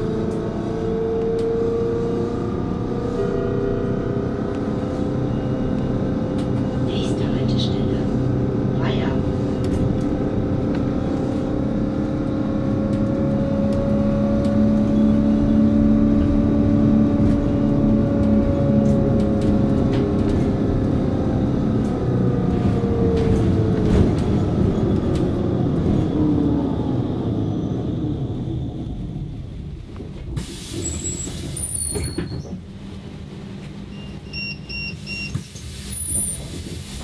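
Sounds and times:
low rumble: 2.7 - 31.3.

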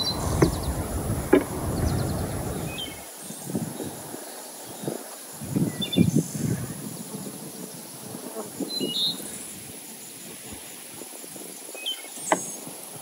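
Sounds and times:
birds chirping: 0.0 - 3.1
insect buzz: 0.0 - 3.1.

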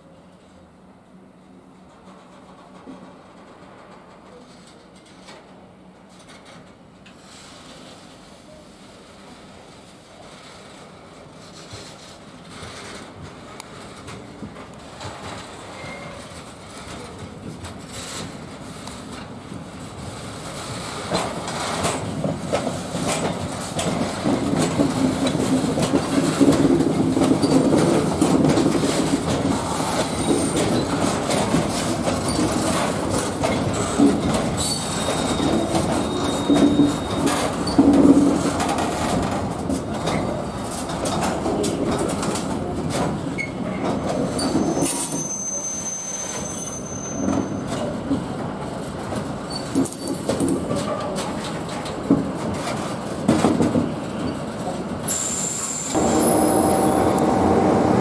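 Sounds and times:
freight train wheels clacking: 10.6 - 58.0
train wheel squeals: 15.1 - 16.4, 27.4 - 27.9, 29.4 - 37.9, 43.4 - 48.0, 49.5 - 51.2, 55.1 - 58.0.

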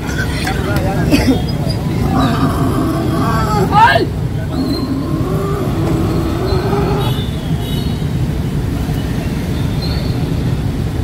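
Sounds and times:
faint crowd voices: 0.0 - 7.3
street traffic: 0.0 - 11.0.

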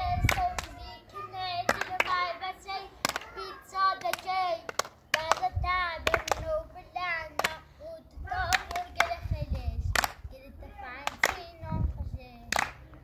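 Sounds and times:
child singing: 0.0 - 13.0
people clapping: 0.2 - 0.8, 1.6 - 2.2, 3.0 - 3.4, 4.0 - 6.5, 7.4 - 7.6, 8.4 - 9.2, 10.0 - 10.2, 11.0 - 11.4, 12.5 - 13.0.

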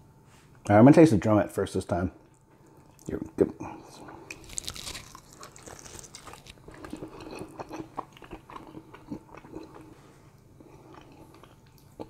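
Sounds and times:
chewing crunches: 4.0 - 10.0, 10.6 - 12.0.

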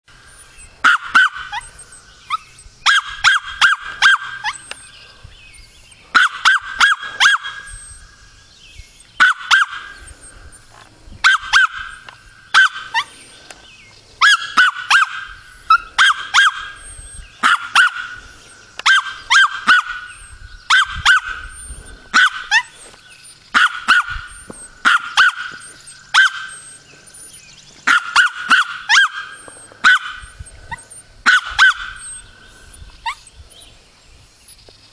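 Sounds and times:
small dog barking: 0.8 - 1.7, 2.3 - 4.8, 6.1 - 7.8, 9.2 - 10.0, 11.2 - 13.1, 14.2 - 22.8, 23.5 - 26.7, 27.8 - 32.2.

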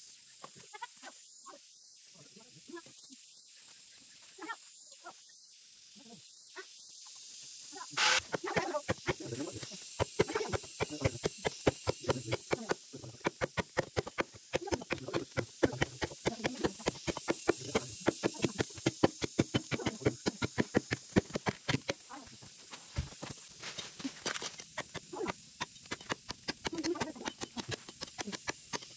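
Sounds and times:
blade hacking into tree trunk: 10.0 - 22.0.

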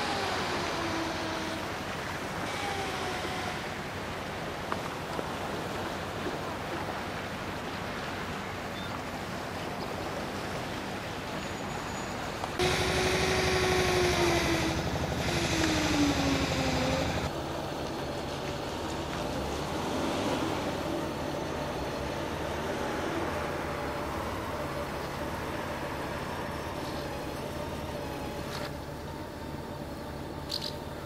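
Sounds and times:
vehicle engine whining: 0.0 - 4.2, 11.6 - 31.0
steady outdoor noise: 0.0 - 31.0.

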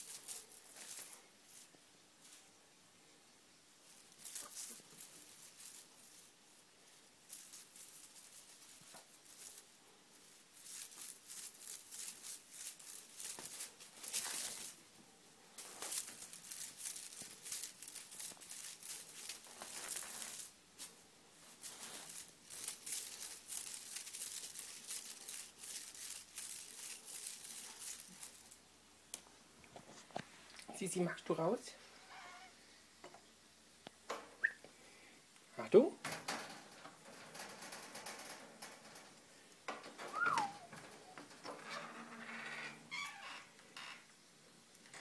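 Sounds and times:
kittens scrabbling in wire cage: 7.3 - 14.8, 15.6 - 28.6, 36.0 - 43.0.

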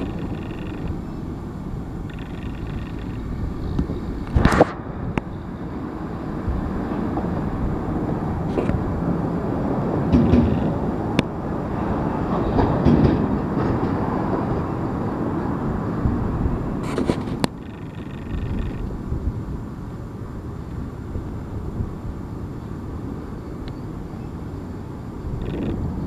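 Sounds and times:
sharp clicks of train wheels: 0.0 - 1.0, 2.0 - 5.3, 10.0 - 14.7
train wheels rumbling on rails: 0.0 - 26.0.

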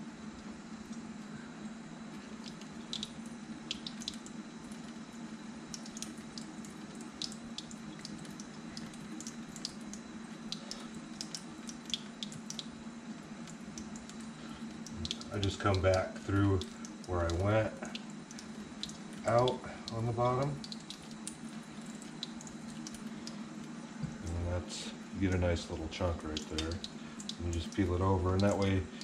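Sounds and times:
faint steady hum: 0.0 - 29.0
light clicks and drips: 0.3 - 29.0
faucet running into steel sink: 13.8 - 23.4, 25.2 - 29.0.

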